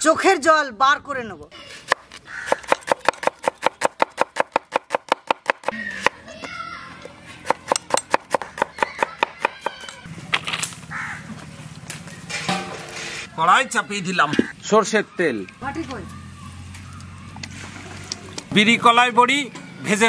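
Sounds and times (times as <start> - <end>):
knife chopping onion on wooden board: 1.9 - 6.2, 7.4 - 9.8.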